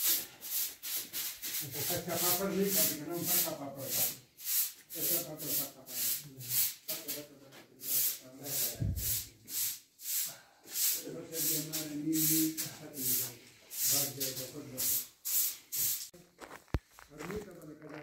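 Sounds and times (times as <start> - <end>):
footsteps on gritty concrete: 16.1 - 18.0.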